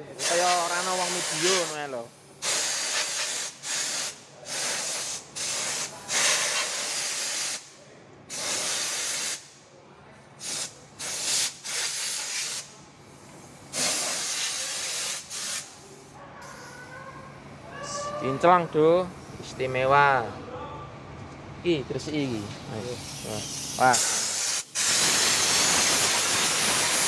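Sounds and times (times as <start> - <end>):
air spray gun hissing: 0.1 - 7.6, 8.3 - 9.5, 10.4 - 12.7, 13.5 - 16.1, 22.9 - 27.0.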